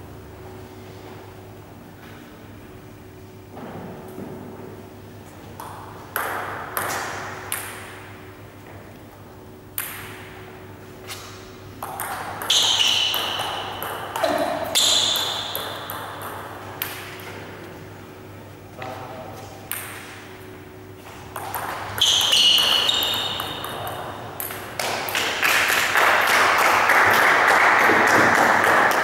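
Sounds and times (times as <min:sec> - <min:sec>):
table tennis ball knocks: 0:11.8 - 0:17.3.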